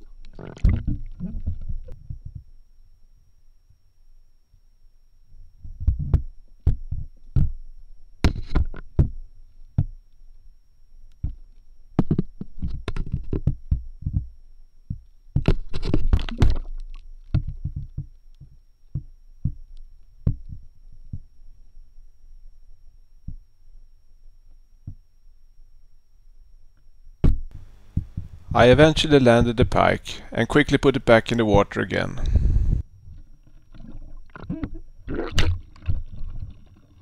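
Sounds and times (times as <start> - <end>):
muffled underwater knocks and clicks: 0.2 - 2.5, 5.6 - 7.6, 11.2 - 21.3, 24.8 - 25.0, 27.2 - 29.7, 33.1 - 36.9.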